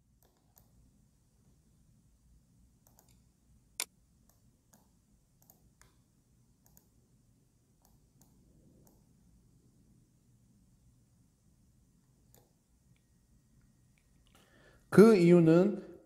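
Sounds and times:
computer mouse clicks: 0.2 - 0.8, 2.8 - 3.2, 3.8 - 6.0, 6.6 - 7.0, 7.8 - 9.1, 12.2 - 13.1.

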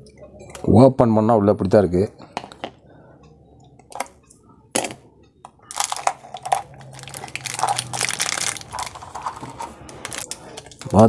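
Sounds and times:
plastic wrap crinkling: 5.7 - 11.0.

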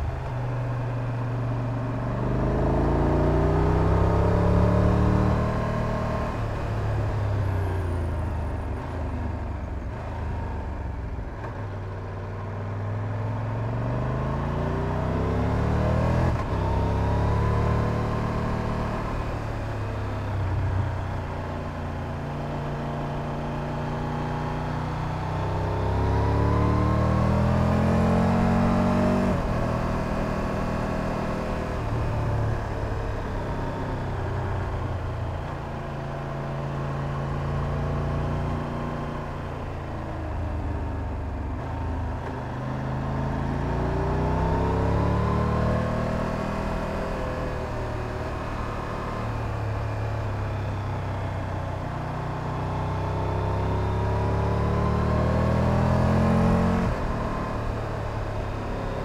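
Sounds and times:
wind and road noise: 0.0 - 59.0
motorcycle engine revving: 23.8 - 39.6, 41.5 - 59.0.

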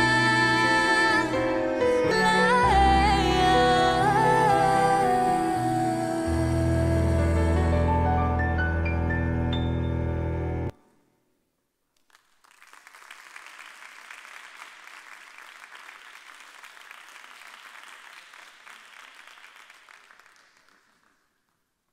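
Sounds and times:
audience applause: 12.1 - 21.6.

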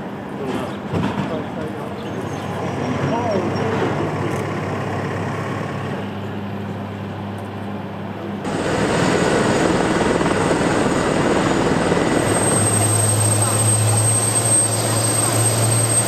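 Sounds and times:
helicopter turbine running: 1.7 - 16.0
high even whine: 8.4 - 16.0.

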